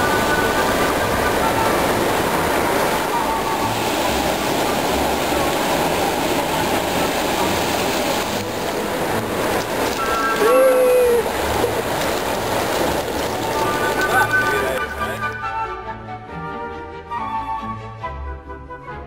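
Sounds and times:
surf waves breaking on sand: 0.0s - 15.4s
wind rumble: 0.0s - 15.4s
faint voices: 10.0s - 12.0s, 13.3s - 15.4s.

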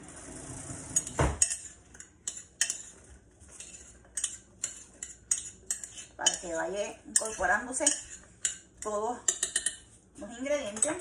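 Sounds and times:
metal utensil clinking against pot: 1.0s - 2.9s, 3.6s - 9.8s.

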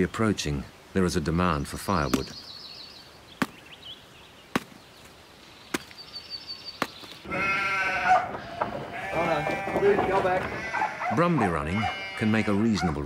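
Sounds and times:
axe chopping wood: 4.5s - 4.8s
sheep bleating: 7.2s - 12.8s.

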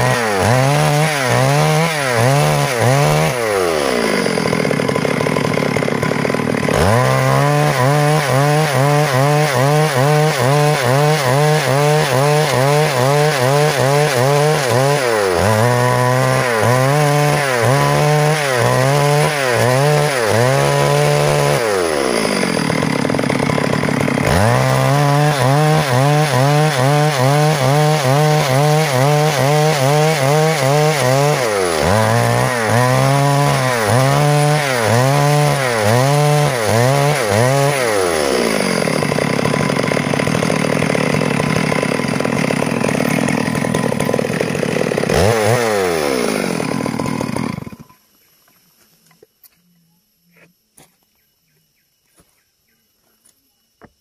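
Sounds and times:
chainsaw cutting log: 0.0s - 48.0s.

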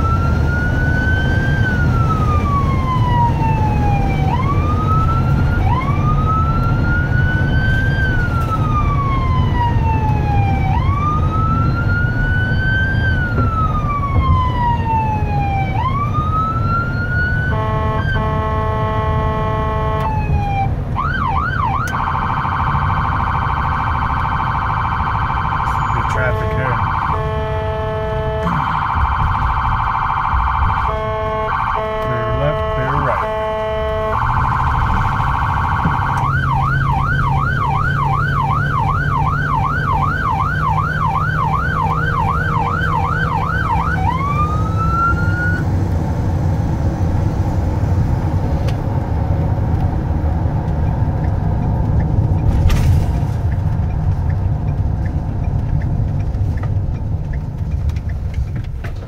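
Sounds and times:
ambulance siren: 0.0s - 46.0s
engine and road rumble: 0.0s - 59.0s.

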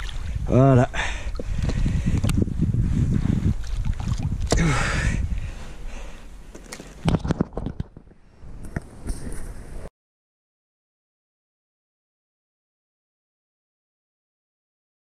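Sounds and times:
water sloshing and dripping: 0.0s - 0.4s, 3.2s - 4.7s.

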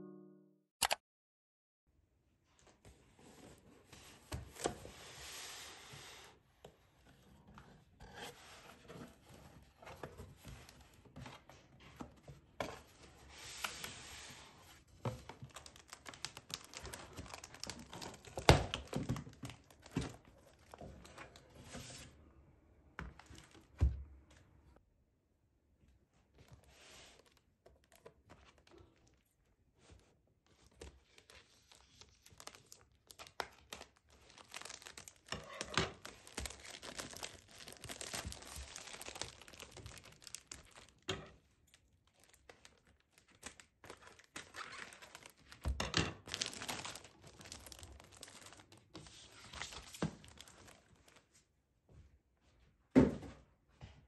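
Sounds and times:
plastic wrap crinkling and tearing: 15.1s - 21.4s, 23.2s - 23.7s, 30.7s - 41.1s, 41.7s - 51.2s.

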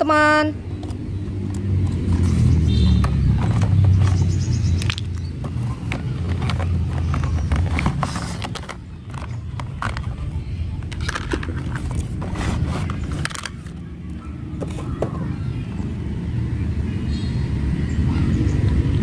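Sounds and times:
plastic toy parts clicking: 4.8s - 13.8s.

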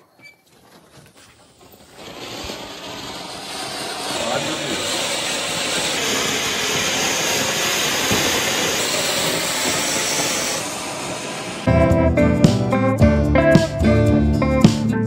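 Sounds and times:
firework fountain hissing: 1.1s - 11.7s.

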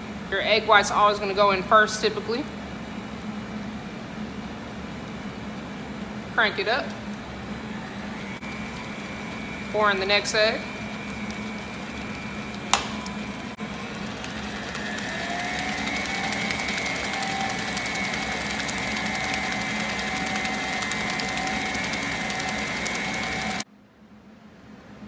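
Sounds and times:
stand mixer motor whine: 7.3s - 23.7s.

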